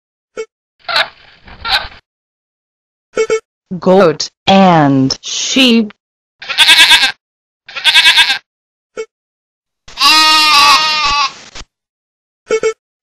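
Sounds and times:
goat and sheep bleating: 0:06.4 - 0:08.5, 0:09.9 - 0:11.4.

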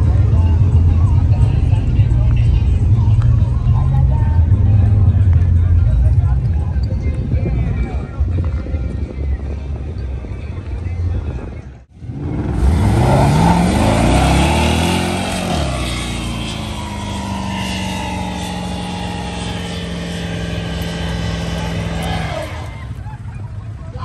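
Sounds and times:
pickup engine revving hard: 0:12.0 - 0:23.0
tyres squealing: 0:12.8 - 0:23.3.

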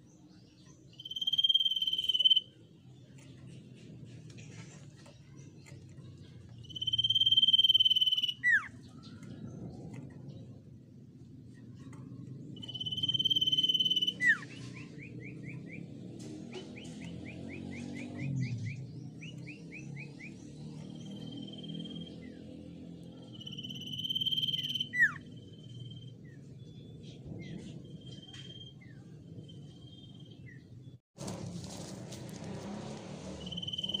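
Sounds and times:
bird whistling: 0:00.9 - 0:02.6, 0:06.6 - 0:08.8, 0:12.6 - 0:15.8, 0:21.1 - 0:22.3, 0:23.3 - 0:26.1, 0:33.4 - 0:34.0.

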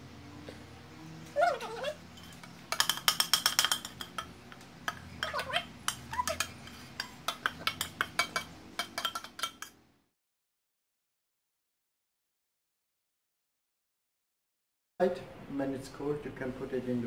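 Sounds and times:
utensil scraping a saucepan: 0:01.8 - 0:09.7.

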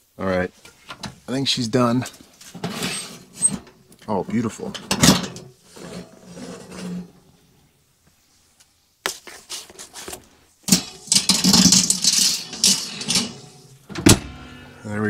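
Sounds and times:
metal oven rack rattling: 0:04.6 - 0:07.1, 0:10.7 - 0:14.3.

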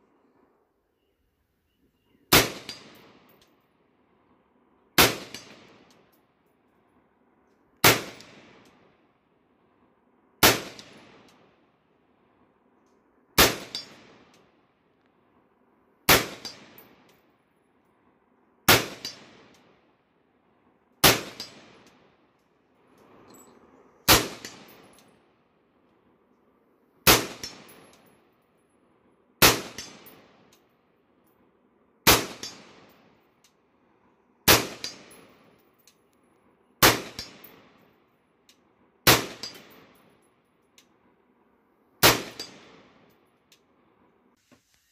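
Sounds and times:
rifle shots: 0:02.3 - 0:03.3, 0:05.0 - 0:05.9, 0:07.8 - 0:08.6, 0:10.4 - 0:11.2, 0:13.4 - 0:14.3, 0:16.1 - 0:17.0, 0:18.7 - 0:19.5, 0:21.0 - 0:21.8, 0:24.1 - 0:24.9, 0:27.0 - 0:27.8, 0:29.4 - 0:30.4, 0:32.0 - 0:32.9, 0:34.5 - 0:35.2, 0:36.8 - 0:37.7, 0:39.0 - 0:39.9, 0:42.0 - 0:43.0.

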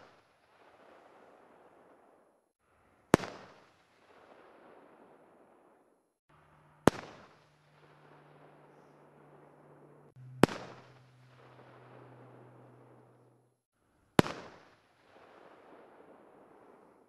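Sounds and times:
faint low hum: 0:06.3 - 0:13.6
firework shells bursting: 0:06.8 - 0:13.3.

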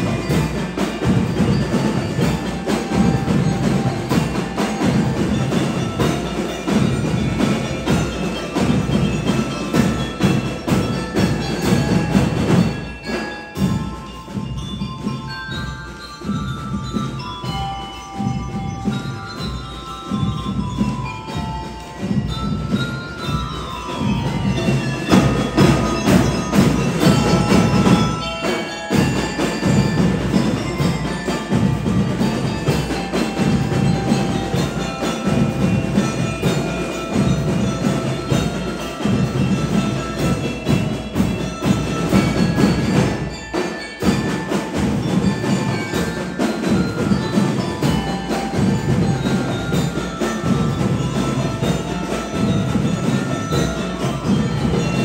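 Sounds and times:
bell lyres ringing a tune: 0:00.0 - 0:55.0
snare drums: 0:00.0 - 0:55.0.

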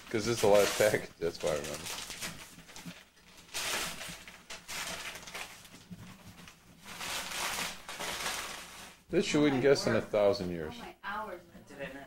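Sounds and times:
wrapping paper crinkling and tearing: 0:00.0 - 0:09.1.

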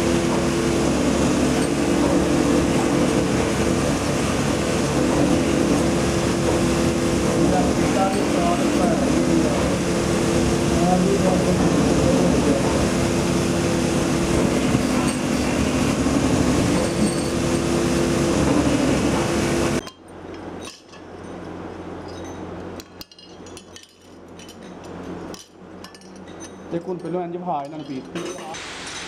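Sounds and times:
grinding wheel running: 0:00.0 - 0:19.8
metal parts clinking on concrete: 0:19.8 - 0:29.0.

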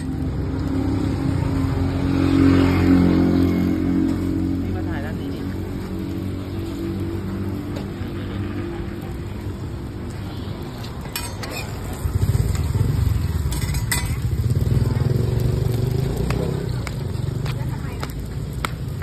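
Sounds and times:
roti sizzling on a griddle: 0:00.0 - 0:19.0
motorcycle engine running: 0:12.0 - 0:19.0.

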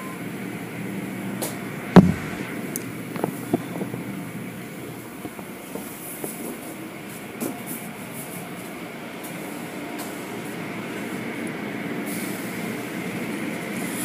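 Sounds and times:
car wash machinery humming: 0:00.0 - 0:14.0
loud thump: 0:01.9 - 0:02.6.

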